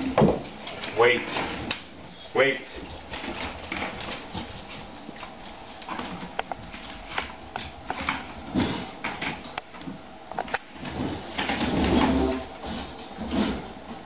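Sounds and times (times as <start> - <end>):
paws on wooden floor: 2.7 - 10.0, 10.8 - 14.0.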